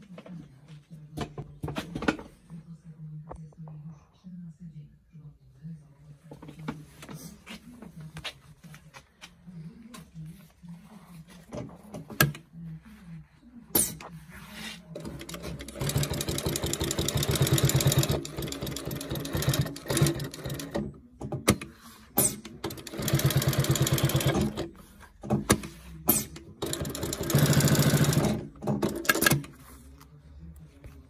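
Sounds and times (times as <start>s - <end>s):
sewing machine stitching: 15.0s - 29.5s.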